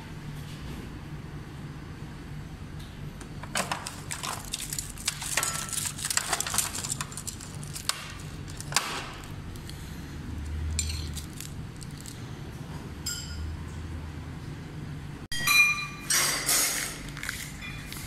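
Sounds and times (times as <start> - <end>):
steady low hum: 0.0 - 16.1
metal spoons clattering: 3.6 - 8.8, 10.7 - 12.2.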